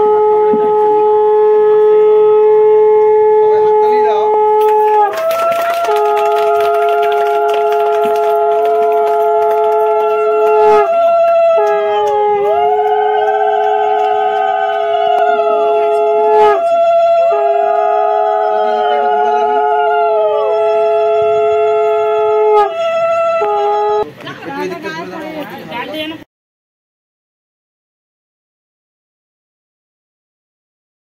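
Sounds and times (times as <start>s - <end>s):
conch shell blasts: 0.0s - 24.0s
women ululating: 4.7s - 24.0s.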